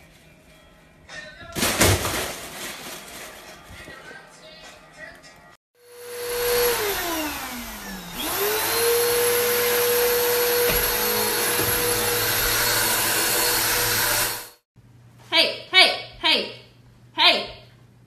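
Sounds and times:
vacuum cleaner whining: 0:05.8 - 0:14.6.

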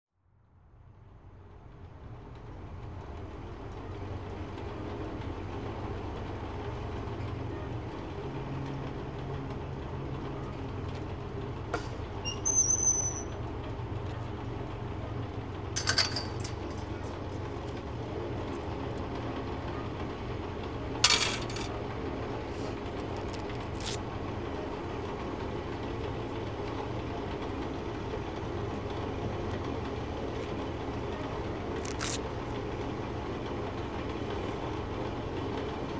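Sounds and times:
metallic clinks: 0:15.8 - 0:16.9, 0:21.0 - 0:21.7.

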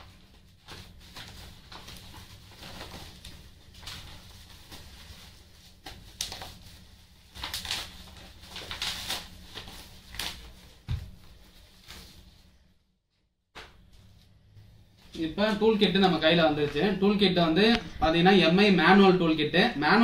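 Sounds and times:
plastic packaging crinkling: 0:00.0 - 0:12.2.

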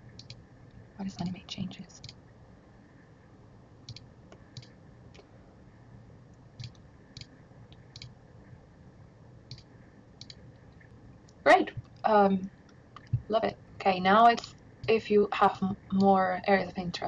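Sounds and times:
computer mouse clicking: 0:00.1 - 0:00.4, 0:03.9 - 0:05.3, 0:06.6 - 0:08.2, 0:09.5 - 0:12.0.

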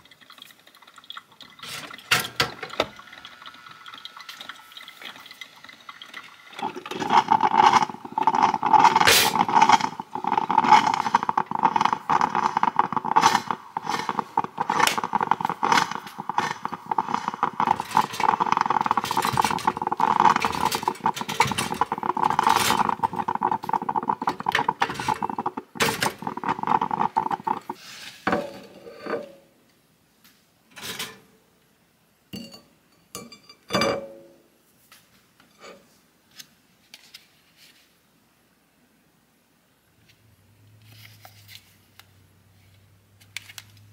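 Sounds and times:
coffee maker gurgling: 0:00.0 - 0:29.3.

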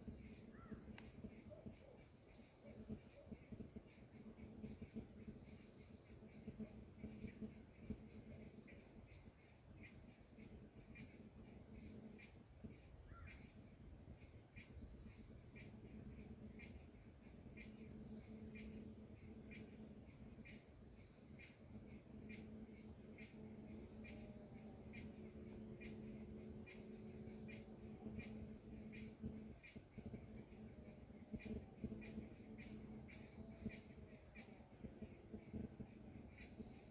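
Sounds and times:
insect chirping: 0:00.0 - 0:36.9
insect high-pitched trill: 0:00.0 - 0:36.9.

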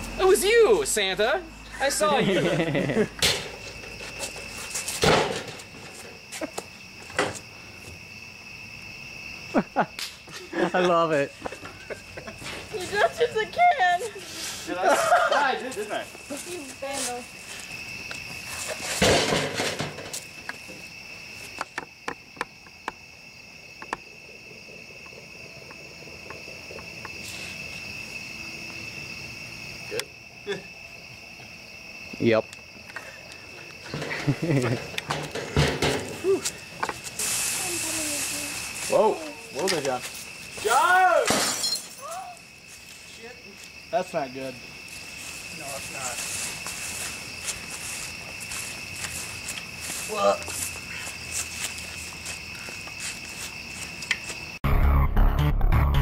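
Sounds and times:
crickets chirping: 0:00.0 - 0:56.0
metal garbage can clatter: 0:19.0 - 0:20.2.

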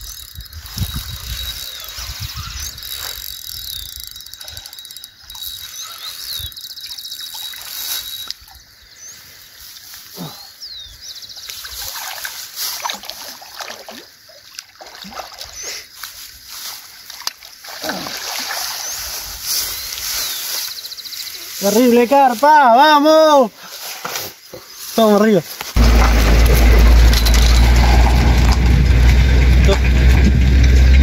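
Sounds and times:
birds chirping: 0:00.0 - 0:12.2, 0:15.3 - 0:16.2, 0:17.0 - 0:23.5, 0:24.3 - 0:28.0
fish splashing in water: 0:11.4 - 0:16.2, 0:16.8 - 0:20.2.

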